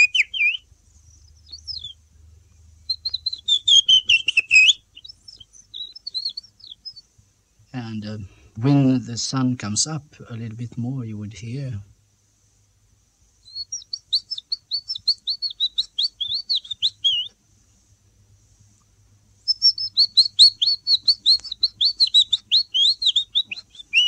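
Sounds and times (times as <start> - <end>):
person whistling bird song: 0.0 - 2.0, 2.9 - 7.0, 13.5 - 17.3, 19.5 - 24.0.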